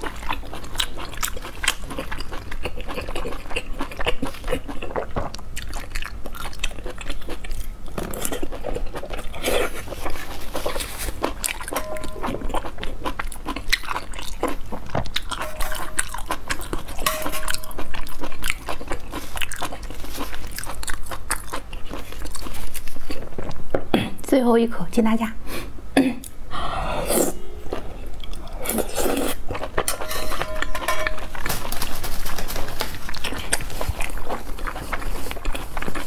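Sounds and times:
close wet chewing: 0.0s - 17.0s, 17.6s - 23.6s, 32.9s - 36.0s.

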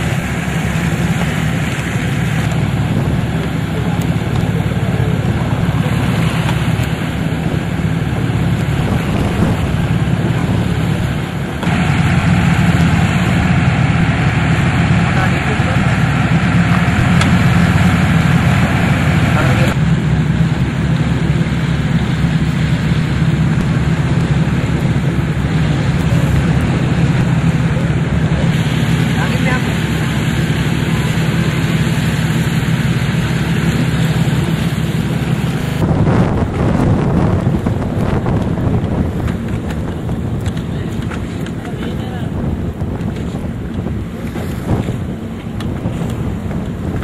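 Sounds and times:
wind rushing: 0.0s - 20.1s, 32.8s - 41.0s
boat engine droning: 0.0s - 47.0s
water noise: 0.0s - 47.0s.

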